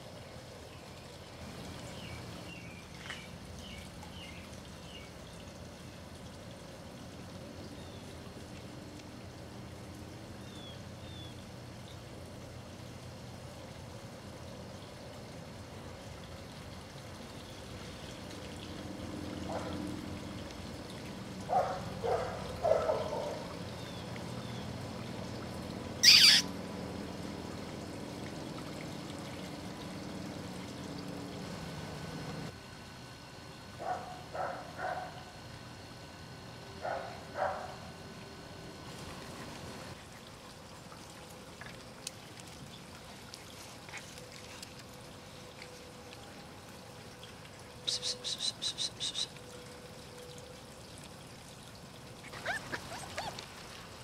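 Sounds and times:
outdoor background noise: 0.0 - 54.0
faint bird chirps: 26.0 - 26.5, 47.8 - 49.4
puppies whimpering: 26.0 - 26.5, 52.2 - 53.4.

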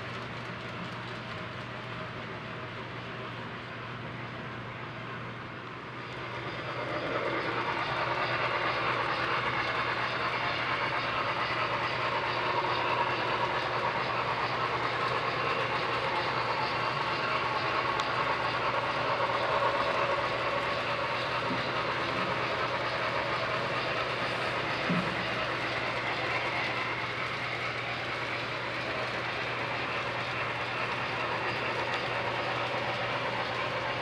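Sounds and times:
model train running on track: 0.0 - 34.0.

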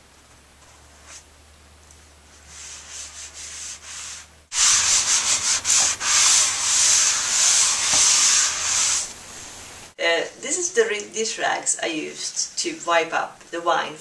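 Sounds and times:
damp cloth rubbing tablecloth: 0.6 - 1.3, 2.3 - 9.1.

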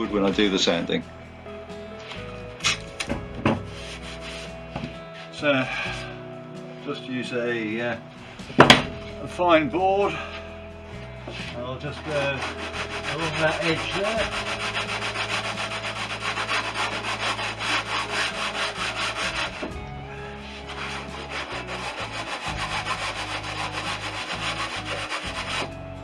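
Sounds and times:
sanding board on fibreglass: 3.7 - 4.6, 11.3 - 19.8, 20.4 - 25.8.

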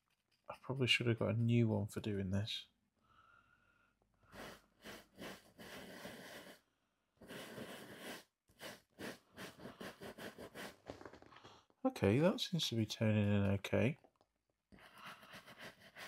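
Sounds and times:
bristle brush scrubbing shoe: 4.3 - 6.6, 7.2 - 10.8.

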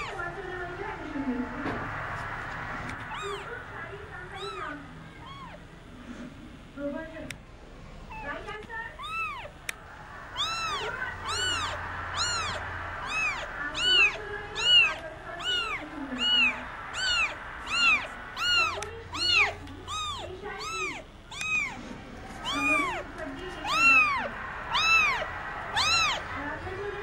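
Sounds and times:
kitten meowing: 0.0 - 0.2, 3.0 - 3.6, 4.3 - 5.6, 8.1 - 9.6, 10.3 - 26.2.

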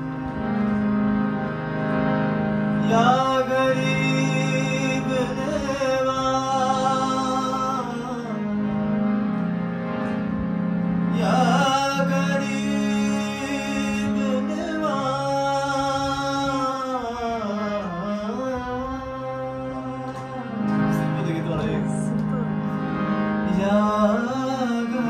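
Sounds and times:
harmonium chords: 0.0 - 25.0
tabla: 0.0 - 25.0
man singing: 2.8 - 8.6, 11.1 - 20.4, 23.4 - 25.0.

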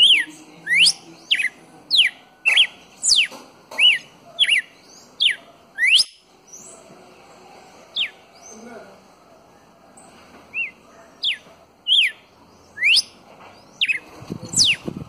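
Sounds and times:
bird whistling song: 0.0 - 6.8, 10.5 - 15.0.

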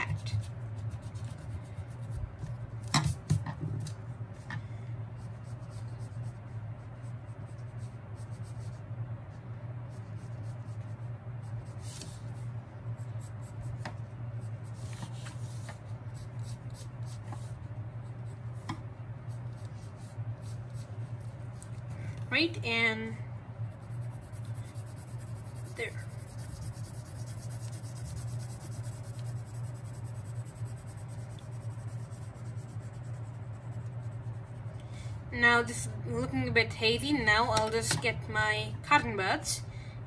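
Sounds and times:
pencil scratching on paper: 0.0 - 3.9, 5.2 - 8.8, 9.8 - 22.8, 23.6 - 34.7
steady low hum: 0.0 - 40.0.

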